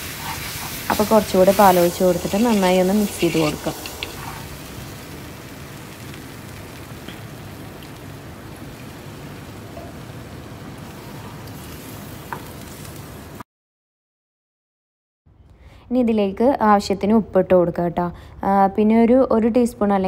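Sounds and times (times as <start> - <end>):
roux sizzling in a frying pan: 0.0 - 13.4.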